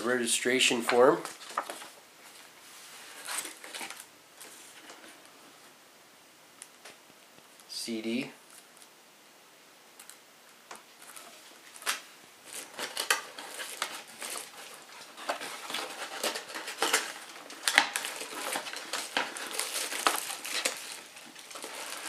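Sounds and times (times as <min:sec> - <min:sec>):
clicks and crinkles: 0:00.9 - 0:02.5, 0:03.2 - 0:05.3, 0:08.4 - 0:09.0, 0:10.0 - 0:22.0
cardboard scraping and rustling: 0:01.2 - 0:05.2, 0:11.0 - 0:22.0.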